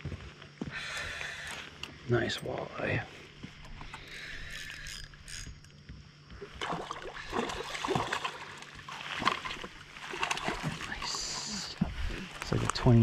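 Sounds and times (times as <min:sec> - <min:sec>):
fish splashing at water surface: 0:06.4 - 0:11.9.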